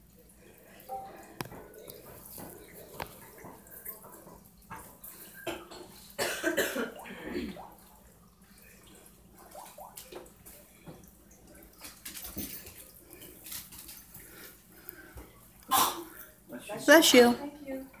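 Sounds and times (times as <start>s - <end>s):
dog coughing: 5.4s - 7.7s, 15.7s - 16.2s
dog claws clicking on wood floor: 11.7s - 14.2s.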